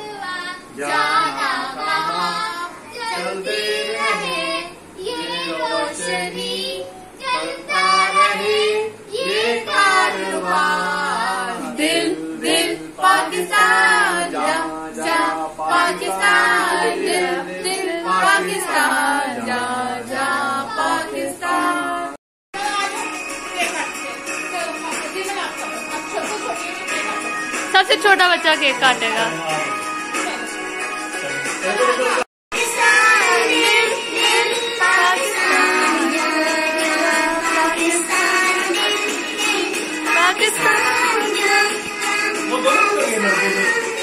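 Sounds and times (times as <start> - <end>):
children singing: 32.1 - 44.0
woman singing: 32.6 - 44.0.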